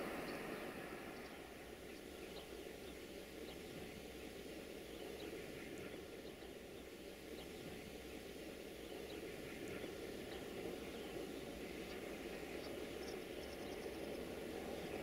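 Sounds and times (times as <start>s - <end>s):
distant diesel locomotive rumble: 0.0s - 15.0s.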